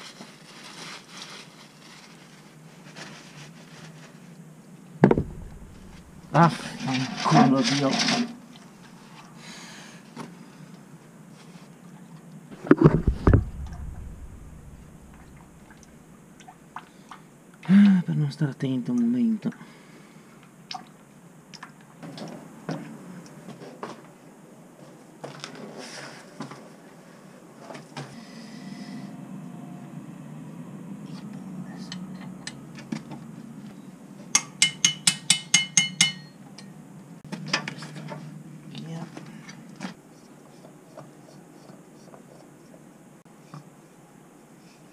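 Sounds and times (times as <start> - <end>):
dull thumps: 5.0 - 6.8, 12.6 - 16.0
metal tool clinking on metal: 34.4 - 36.7.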